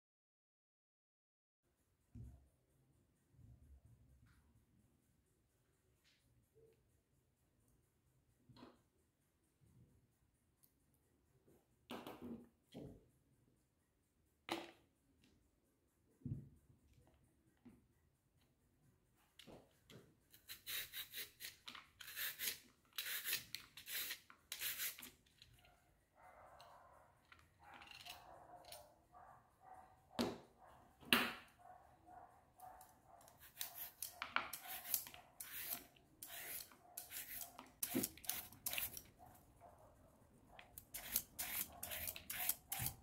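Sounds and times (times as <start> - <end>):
peeler blades rasping on cucumber: 20.3 - 25.2, 33.4 - 39.1, 40.8 - 43.0.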